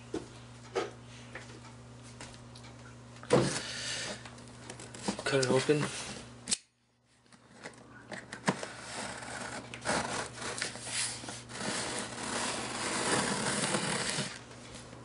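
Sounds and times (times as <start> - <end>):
blade cutting cardboard and tape: 8.4 - 14.4.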